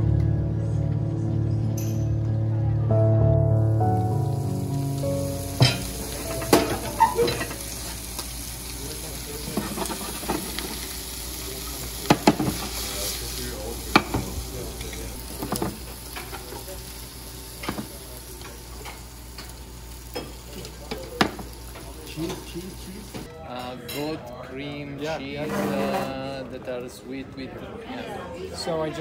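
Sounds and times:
food sizzling in frying pans: 3.8s - 23.3s
metal cookware clinks: 5.6s - 7.6s.

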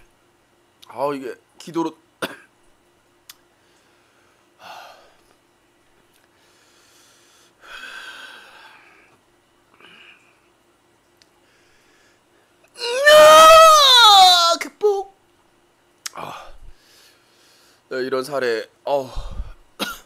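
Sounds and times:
man breathing heavily: 3.5s - 5.4s, 6.3s - 10.5s, 11.4s - 12.6s, 16.1s - 17.9s, 19.0s - 19.7s.

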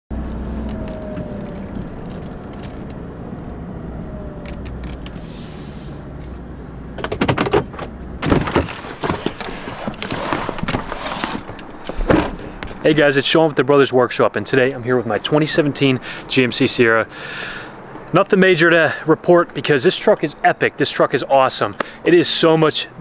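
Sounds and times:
road and engine rumble: 0.1s - 23.0s
clicks and knocks from truck door: 7.0s - 12.8s.

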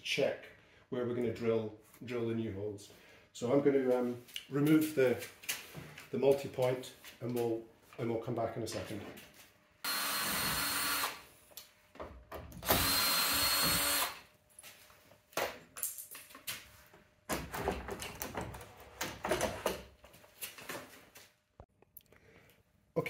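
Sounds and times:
cordless drill whine: 9.9s - 11.2s, 12.6s - 14.2s.

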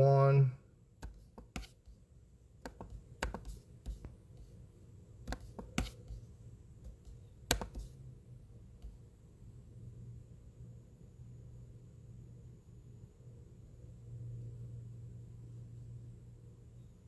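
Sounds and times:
low steady hum: 0.0s - 17.0s
computer mouse clicking: 2.6s - 4.0s, 6.9s - 8.0s.

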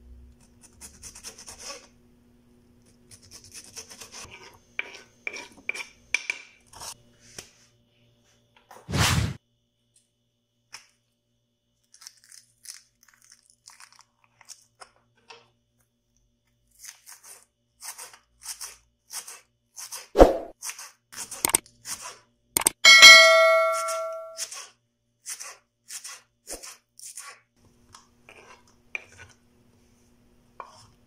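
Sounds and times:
knife crunching through lettuce: 11.9s - 14.9s.

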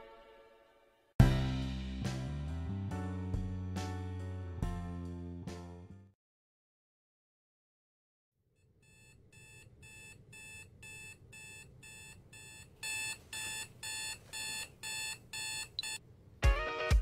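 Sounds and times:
smartphone alarm beeping: 9.0s - 16.0s.

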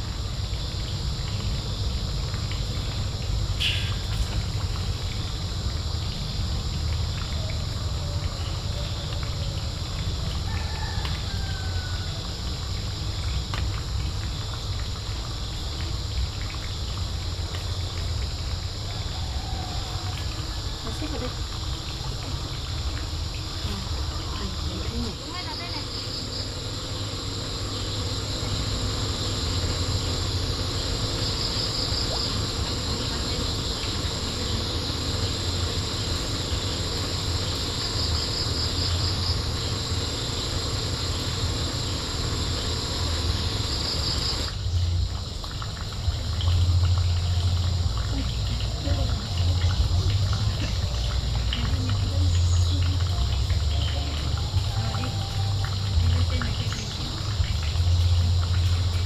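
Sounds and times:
insect pulsed chirps: 0.0s - 18.9s, 20.3s - 59.0s
insects trilling: 0.0s - 59.0s.

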